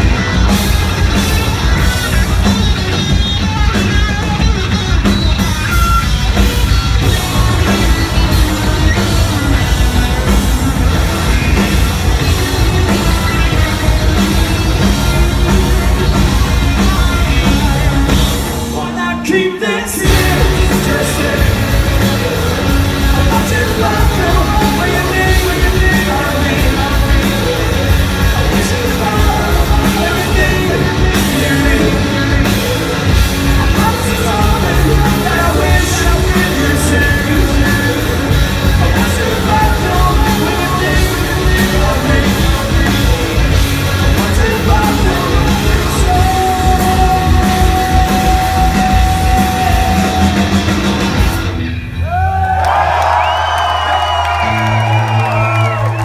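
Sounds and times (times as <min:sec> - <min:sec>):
drum kit: 0:00.0 - 0:56.0
electric bass: 0:00.0 - 0:56.0
electric guitar: 0:00.0 - 0:56.0
person singing: 0:07.0 - 0:51.0.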